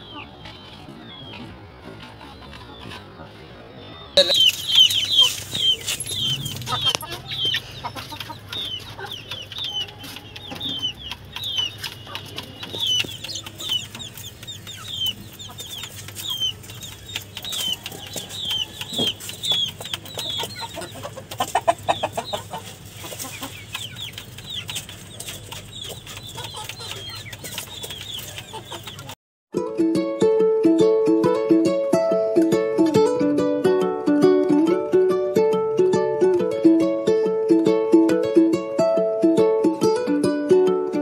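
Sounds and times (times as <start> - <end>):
chicks peeping: 0.0 - 29.2
beaks tapping a bowl: 4.2 - 22.4, 23.2 - 29.2.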